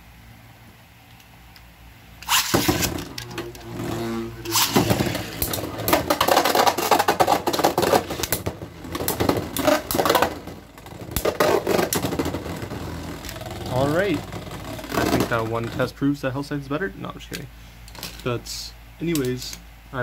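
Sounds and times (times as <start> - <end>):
spinning tops launching: 2.2 - 15.8
spinning tops whirring and rattling: 2.2 - 15.9.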